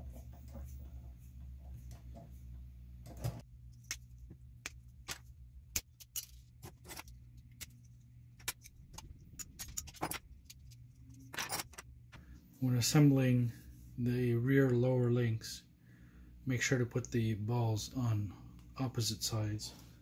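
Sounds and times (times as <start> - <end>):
steady low hum: 0.0 - 20.0
small parts clicking and tapping: 3.7 - 12.2.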